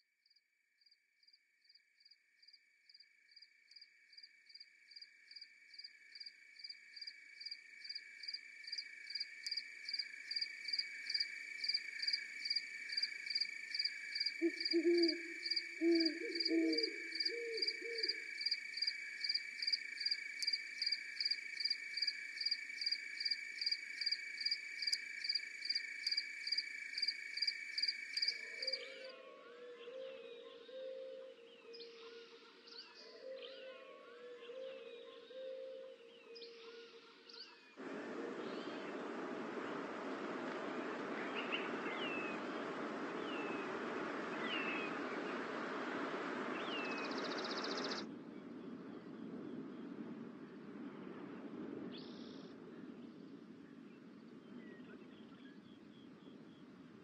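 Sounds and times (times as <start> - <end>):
cricket chirping: 0.0 - 54.6
insect trill: 0.8 - 32.7, 41.2 - 48.0
owl hooting: 14.3 - 18.3.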